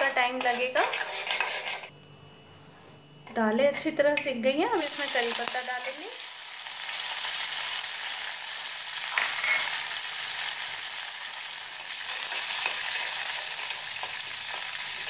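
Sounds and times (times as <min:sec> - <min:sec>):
ladle scraping a steel pan: 0:00.4 - 0:01.9
leaves sizzling in hot oil: 0:04.7 - 0:15.0.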